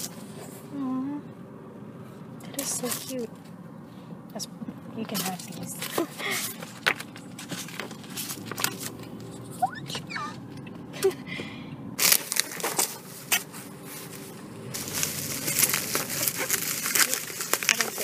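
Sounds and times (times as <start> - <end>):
cardboard and paper rustling: 0.0 - 0.6, 2.5 - 3.5, 5.0 - 10.1, 12.0 - 18.0
plastic wrapping crinkling: 12.0 - 18.0.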